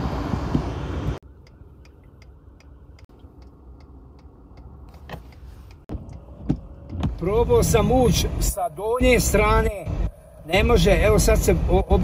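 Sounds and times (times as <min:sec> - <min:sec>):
car cabin road noise: 0:00.0 - 0:12.0
low idle hum: 0:00.0 - 0:12.0
turn signal clicking: 0:00.5 - 0:09.6.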